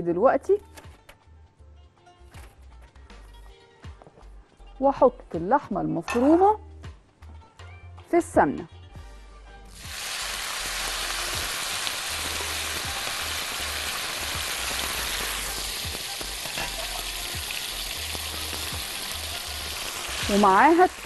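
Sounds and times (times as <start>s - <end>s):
meat sizzling in hot fat: 9.7s - 21.0s.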